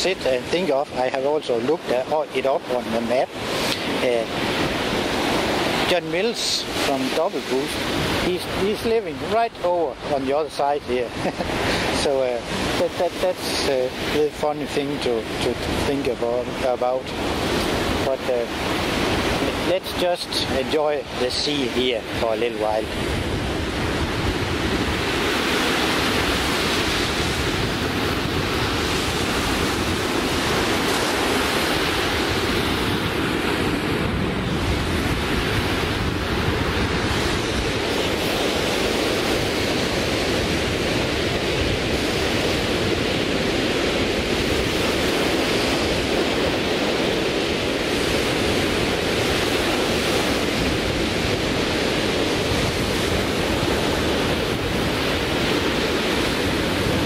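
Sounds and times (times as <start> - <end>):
waves breaking on a beach: 0.0 - 57.0
wind on microphone: 0.0 - 57.0.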